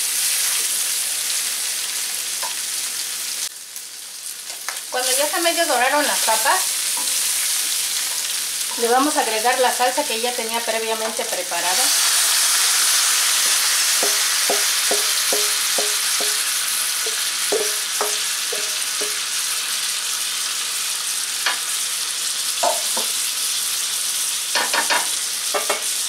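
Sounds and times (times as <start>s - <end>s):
food sizzling in a frying pan: 0.0s - 26.0s
utensil knocking against bowl: 14.0s - 16.4s, 17.5s - 19.2s.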